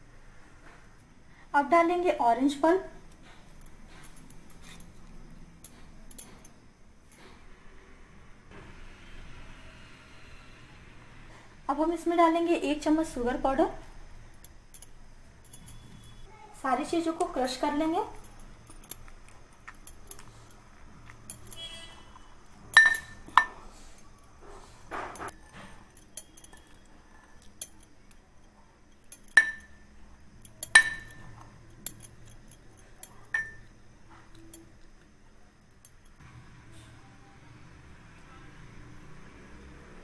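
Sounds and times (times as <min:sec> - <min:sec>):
metal clinking on glass: 0:14.4 - 0:16.3, 0:18.1 - 0:23.7, 0:25.0 - 0:34.8.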